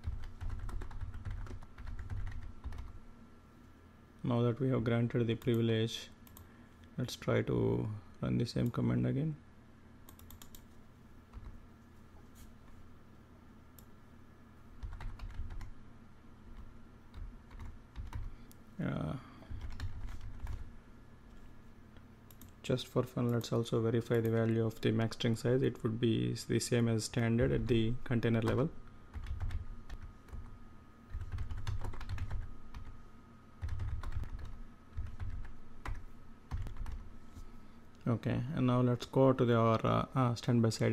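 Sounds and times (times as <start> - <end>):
keyboard typing: 0.0 - 3.0, 10.1 - 10.7, 14.8 - 15.7, 16.6 - 18.3, 19.5 - 20.7, 28.4 - 30.5, 31.1 - 32.9, 33.6 - 37.0
faint high hum: 0.0 - 40.9.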